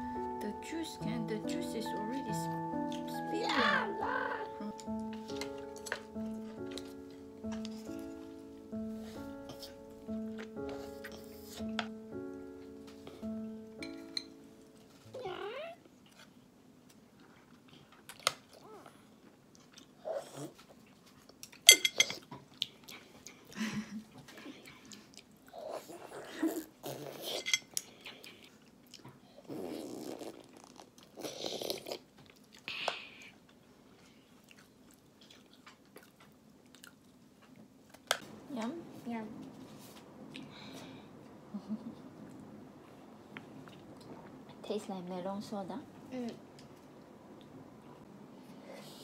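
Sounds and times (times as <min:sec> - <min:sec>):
child chewing: 0:04.4 - 0:14.8, 0:15.8 - 0:38.2, 0:42.2 - 0:44.6
faint steady hum: 0:38.0 - 0:49.0.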